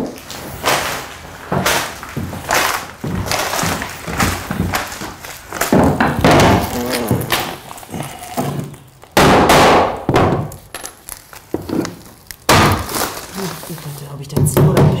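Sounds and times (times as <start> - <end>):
rough wood sounds: 1.1 - 9.2, 10.6 - 14.1
hammer knocking floorboards: 1.4 - 10.6, 14.3 - 15.0.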